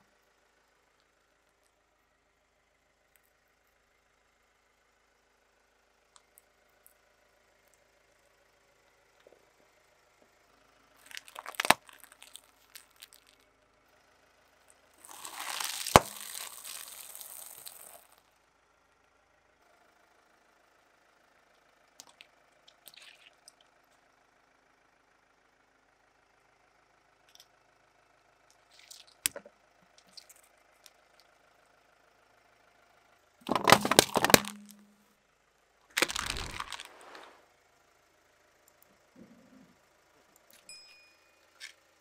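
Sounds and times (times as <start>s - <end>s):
engine hum: 0.0s - 42.0s
cans crushed under tyre: 11.0s - 13.4s, 15.0s - 18.2s, 33.4s - 35.0s, 36.0s - 36.9s
small cracks and pops: 11.0s - 13.4s, 15.0s - 18.2s, 22.0s - 23.7s, 28.5s - 31.3s, 33.4s - 35.0s, 36.0s - 36.9s.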